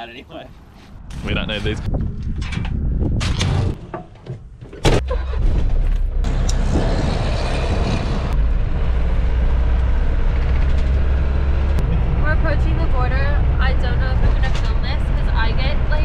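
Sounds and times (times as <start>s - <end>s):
road and wind noise: 0.0s - 16.0s
bus engine droning: 4.8s - 16.0s
truck passing by rush: 6.2s - 14.2s.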